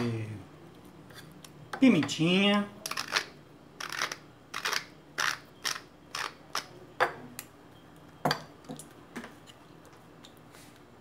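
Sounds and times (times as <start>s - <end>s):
pepper mill grinding: 2.8s - 6.7s.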